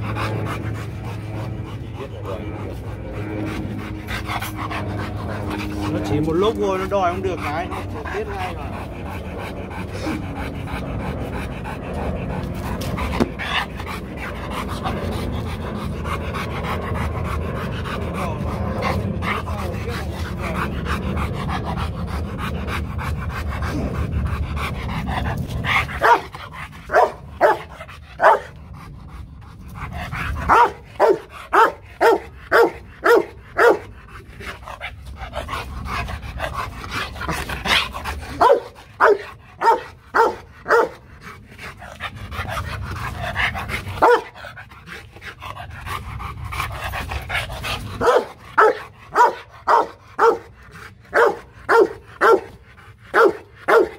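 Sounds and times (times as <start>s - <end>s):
dog barking: 26.0s - 26.3s, 26.9s - 28.5s, 30.5s - 33.8s, 38.4s - 41.0s, 44.0s - 44.3s, 48.0s - 50.5s, 51.1s - 52.5s, 53.2s - 53.9s.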